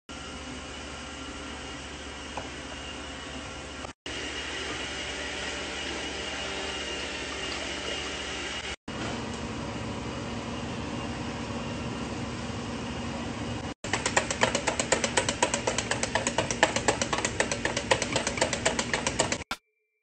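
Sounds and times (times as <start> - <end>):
whisk clicking against metal bowl: 13.9 - 19.6.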